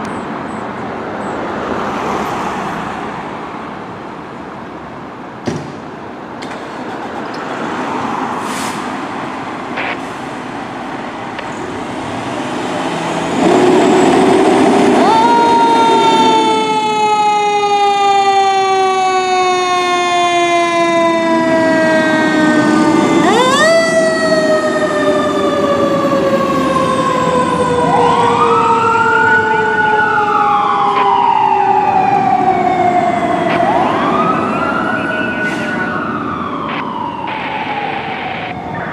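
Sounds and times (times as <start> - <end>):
electronic siren wailing: 14.8 - 38.9.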